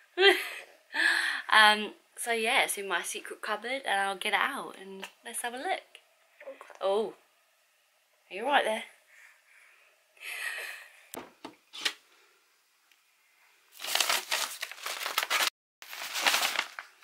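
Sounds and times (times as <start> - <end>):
packaging crinkling: 13.7 - 17.0.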